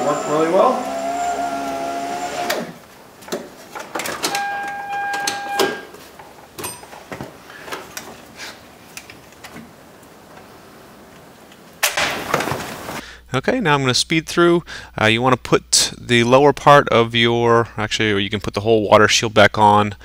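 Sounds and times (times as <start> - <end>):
power window motor whining: 0.0 - 2.8.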